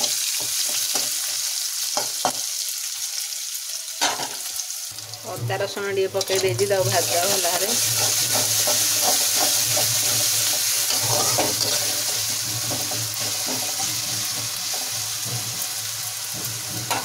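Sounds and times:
onions sizzling in hot oil: 0.0 - 17.0
metal spatula scraping pan: 5.8 - 17.0.

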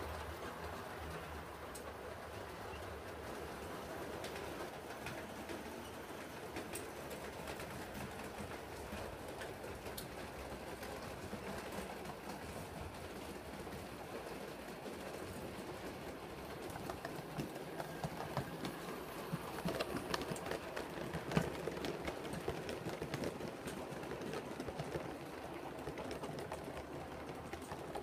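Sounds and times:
model train wheels clicking: 0.0 - 28.0.

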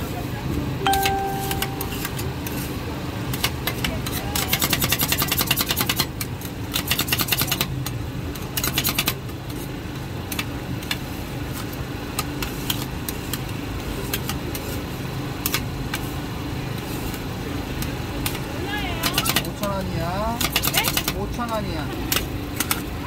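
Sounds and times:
low mechanical hum: 0.0 - 23.0.

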